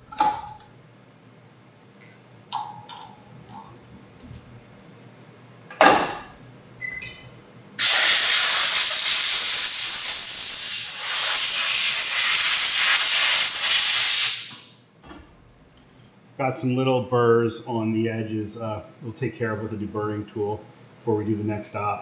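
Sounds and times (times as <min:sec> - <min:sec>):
compressed air blow gun hissing: 0:07.8 - 0:14.7.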